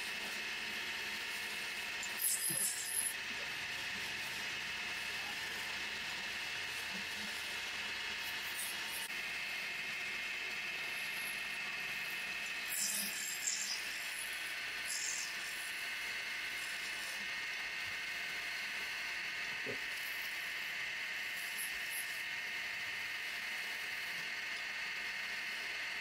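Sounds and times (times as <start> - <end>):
wood lathe running: 0.0 - 24.5
tool cutting wood hisses: 2.0 - 3.2, 10.7 - 17.3.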